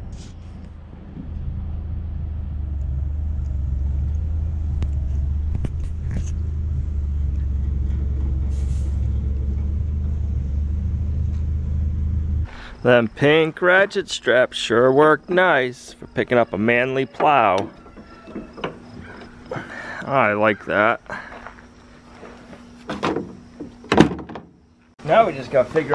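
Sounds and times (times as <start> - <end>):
vehicle engine droning: 0.0 - 13.3.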